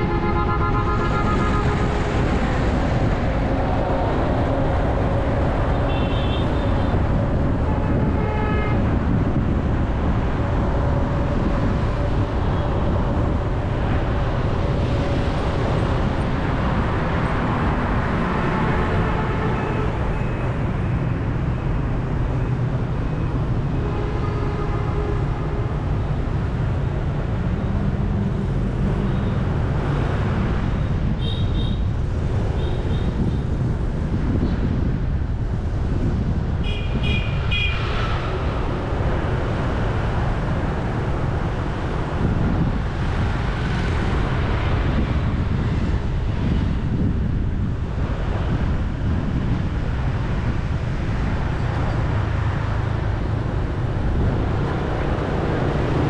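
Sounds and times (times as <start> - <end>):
motorbike traffic rumble: 0.0 - 56.0.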